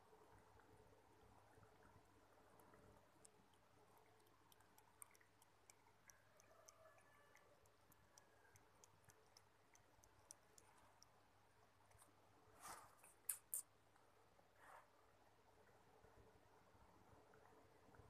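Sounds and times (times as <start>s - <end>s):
cat lapping milk: 0.1s - 12.4s.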